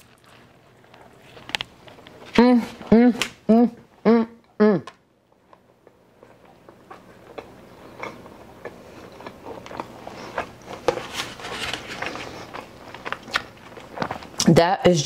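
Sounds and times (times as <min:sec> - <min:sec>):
person chewing food: 0:00.0 - 0:02.4, 0:05.3 - 0:14.5.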